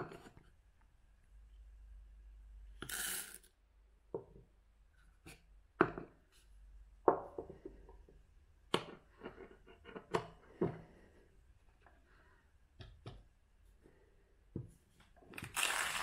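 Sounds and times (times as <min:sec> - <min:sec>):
coffee beans rattling into grinder: 0:02.8 - 0:03.4, 0:15.4 - 0:16.0.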